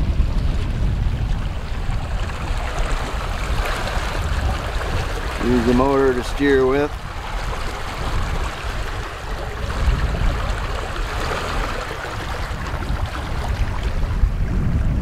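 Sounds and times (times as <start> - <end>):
water rushing and splashing: 0.0 - 15.0
wind rumbling on microphone: 0.0 - 15.0.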